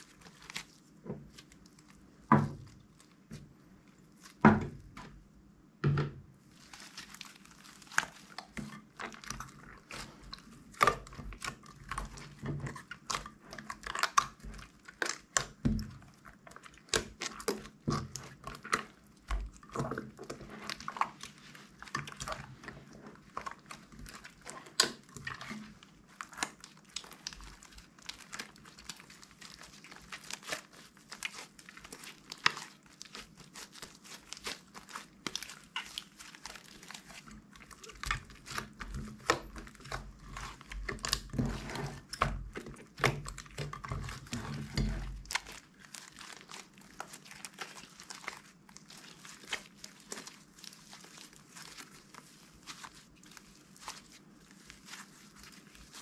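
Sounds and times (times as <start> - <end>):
slime crackling and popping: 0.0 - 5.0, 6.5 - 56.0.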